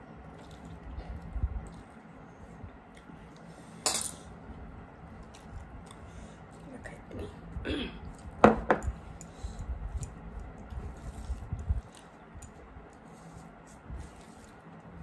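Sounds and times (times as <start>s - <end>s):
chewing: 0.2s - 3.5s, 5.1s - 6.7s, 9.1s - 13.1s
fingers mixing rice on plates: 8.0s - 15.0s.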